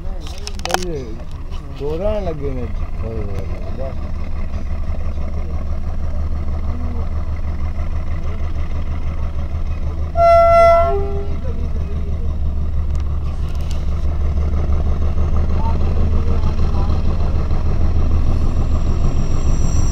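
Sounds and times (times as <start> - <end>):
vehicle engine and road rumble: 0.0 - 19.9
two-tone vehicle horn: 10.1 - 11.5.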